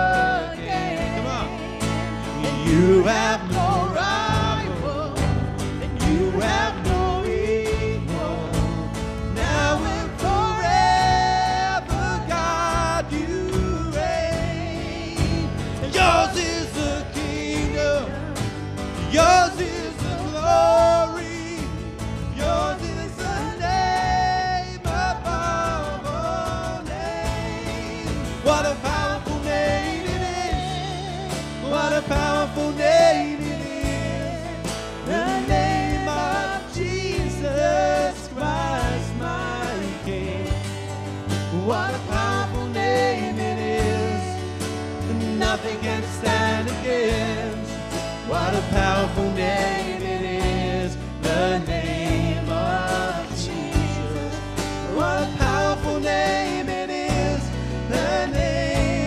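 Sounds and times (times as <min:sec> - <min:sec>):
woman singing lead: 0:00.0 - 0:05.4
acoustic guitar: 0:00.0 - 0:59.0
bass guitar: 0:00.0 - 0:59.0
drums: 0:00.0 - 0:59.0.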